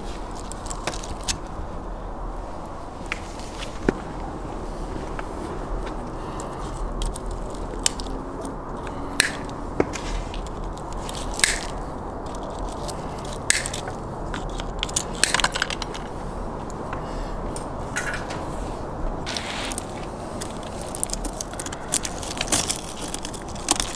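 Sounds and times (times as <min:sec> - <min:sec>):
low background hum: 0:00.0 - 0:23.9
wire scraping: 0:02.6 - 0:23.9
wire cutters snipping: 0:06.4 - 0:16.1, 0:19.3 - 0:23.9.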